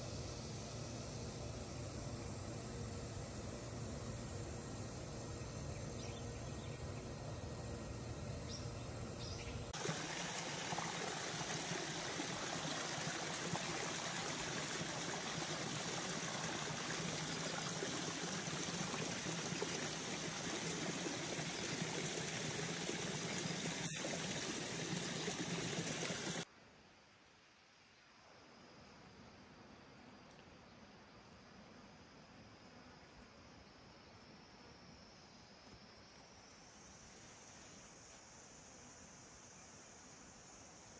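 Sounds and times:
steady rushing hiss: 0.0 - 26.5.

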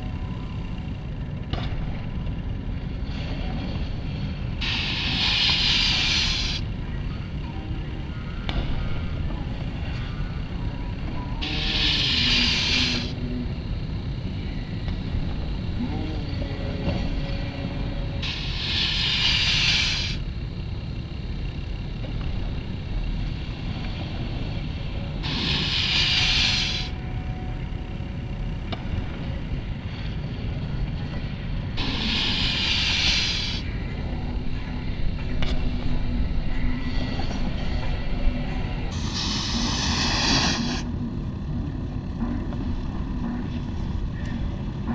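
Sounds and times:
steady low rumble: 0.0 - 44.9
snowboards sliding with a hiss: 4.6 - 6.6, 11.4 - 13.1, 18.2 - 20.2, 25.2 - 26.9, 31.8 - 33.6, 39.0 - 40.9.

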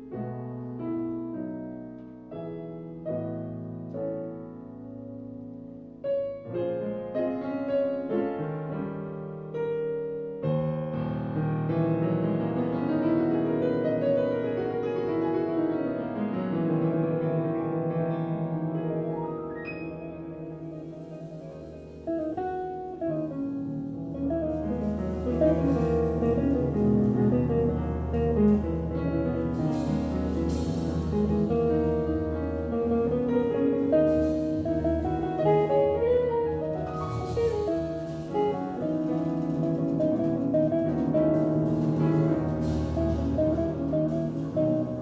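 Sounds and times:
piano chords: 0.0 - 45.0
cymbals: 19.6 - 45.0
double bass: 19.7 - 45.0
jazz band playing: 19.7 - 45.0.

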